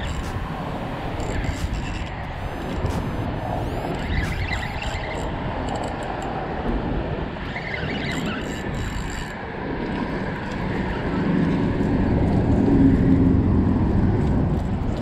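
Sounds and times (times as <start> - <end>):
traffic engine rumble: 0.0 - 5.6, 10.6 - 15.0.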